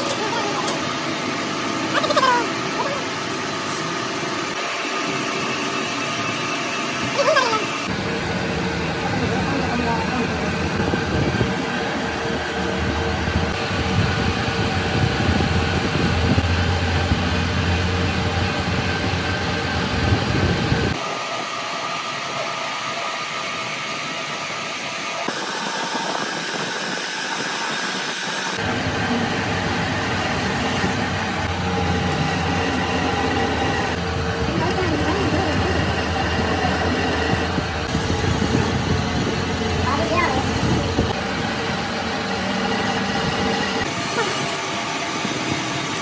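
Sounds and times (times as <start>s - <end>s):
cutting tool working steel: 0.0s - 8.0s, 21.0s - 46.0s
metal lathe motor hum and whine: 0.0s - 46.0s.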